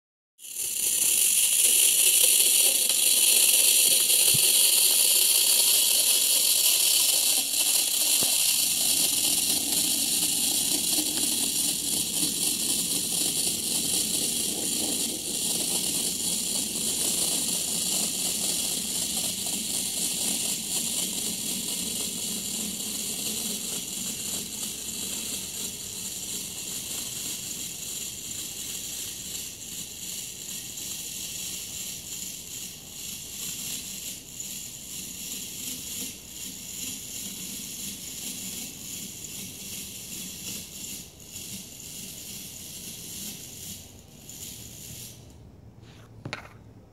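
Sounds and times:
sparking mechanism hissing: 0:00.4 - 0:12.2
clockwork motor whirring: 0:00.4 - 0:43.5
toy wheels rumbling on wooden floor: 0:00.4 - 0:45.4.

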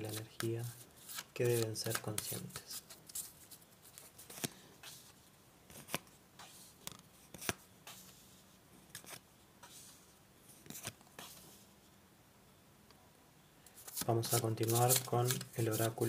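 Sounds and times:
cards sliding on cloth: 0:01.0 - 0:11.7.

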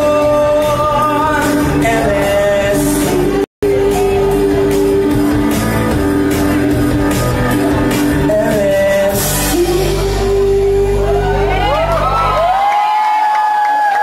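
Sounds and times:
man singing into a microphone: 0:00.0 - 0:06.6, 0:07.7 - 0:11.7
loud backing music: 0:00.0 - 0:12.8.

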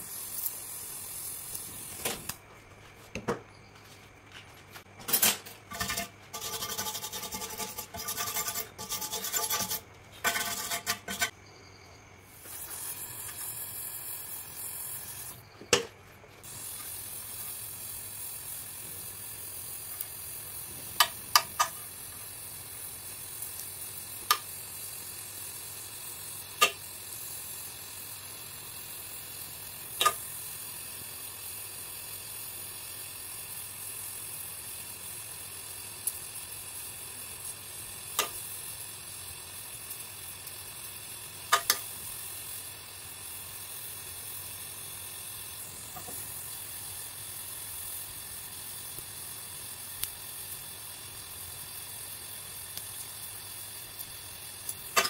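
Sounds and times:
gas torch hissing: 0:00.0 - 0:02.4, 0:12.2 - 0:15.8, 0:16.4 - 0:55.0
flame popping and crackling: 0:00.0 - 0:02.5, 0:12.3 - 0:15.8, 0:16.4 - 0:55.0
metallic scraping: 0:05.1 - 0:11.3.

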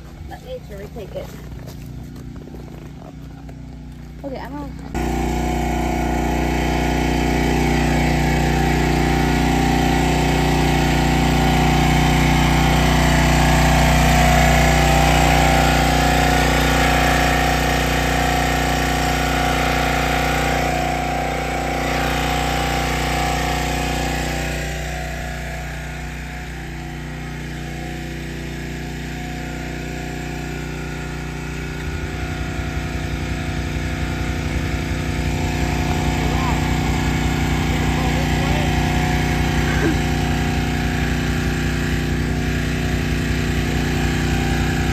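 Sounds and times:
small gas engine running: 0:00.0 - 0:44.9.

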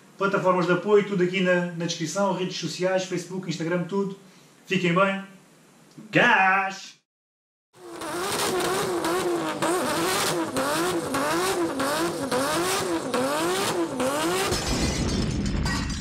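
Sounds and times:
car engine revving: 0:07.8 - 0:14.7.

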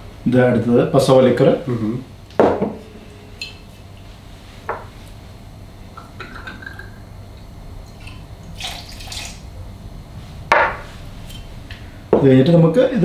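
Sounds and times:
liquid poured over ice in shaker: 0:07.9 - 0:09.4
liquid pouring into a metal jigger: 0:07.9 - 0:09.4.

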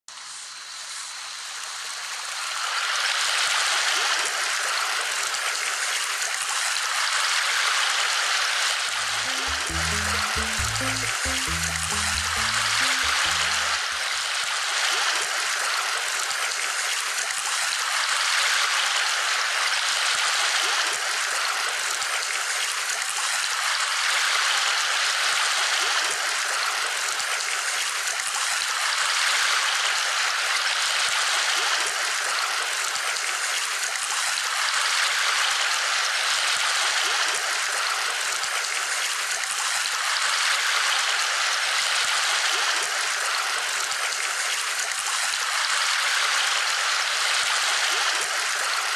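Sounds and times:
running water: 0:08.9 - 0:14.1.

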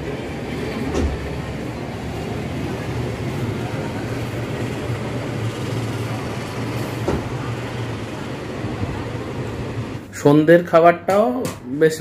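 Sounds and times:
car road and engine noise: 0:00.0 - 0:10.0.

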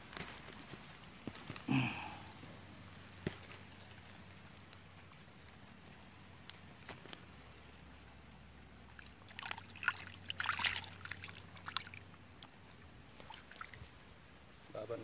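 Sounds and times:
shallow water splashing: 0:08.9 - 0:14.1.

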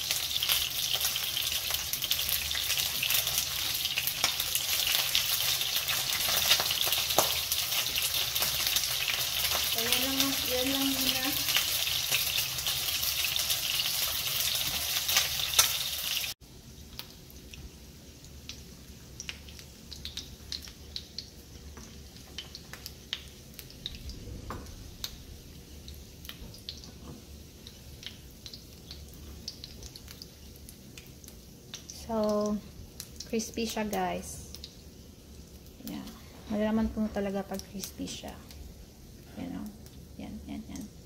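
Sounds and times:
oil crackling: 0:00.0 - 0:17.2
chicken frying in hot oil: 0:00.0 - 0:41.0.

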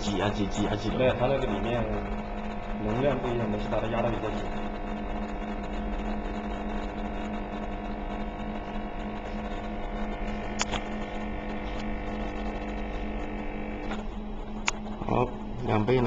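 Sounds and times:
coffee machine pump humming: 0:00.0 - 0:16.0
sharp clicks: 0:10.4 - 0:12.8.

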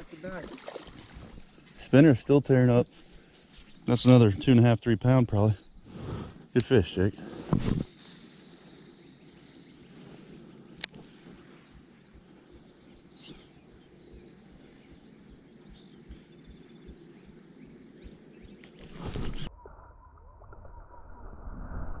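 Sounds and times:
high-pitched insect trill: 0:00.0 - 0:19.5
bird chirps: 0:12.0 - 0:19.5.

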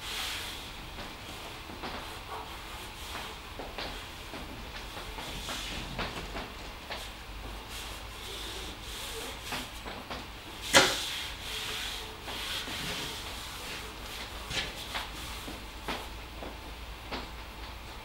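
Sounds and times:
tape being rubbed down: 0:07.0 - 0:09.8, 0:10.6 - 0:16.1.

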